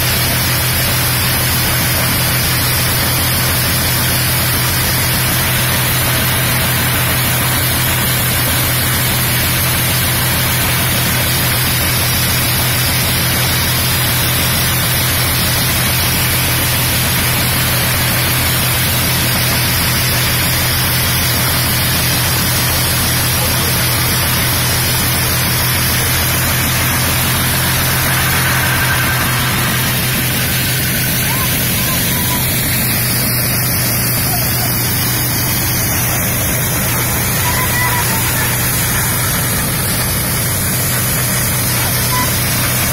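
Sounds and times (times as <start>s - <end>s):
low engine hum: 0.0s - 42.9s
threshing drum rushing noise: 23.8s - 34.0s.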